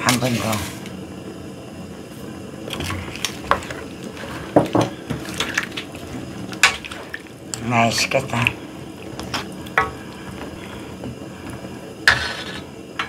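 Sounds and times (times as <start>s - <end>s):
wooden spoon scraping a wok: 0.0s - 0.9s, 2.7s - 7.2s, 9.1s - 13.0s.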